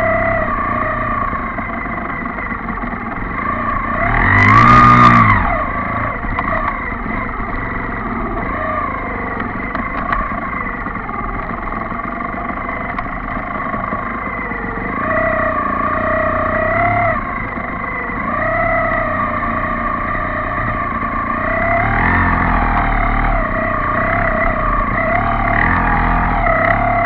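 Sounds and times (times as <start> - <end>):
motorcycle engine revving: 0.0 - 27.0.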